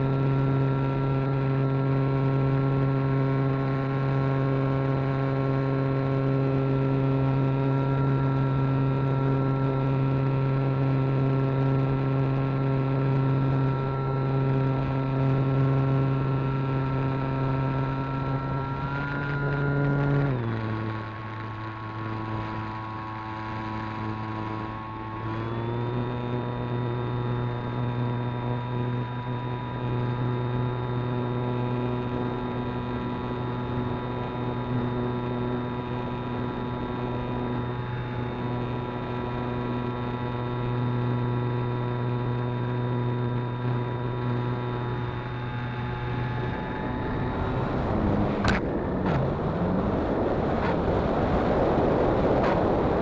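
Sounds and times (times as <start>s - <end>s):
model plane motor and propeller: 0.0s - 53.0s
rush of wind: 44.7s - 53.0s.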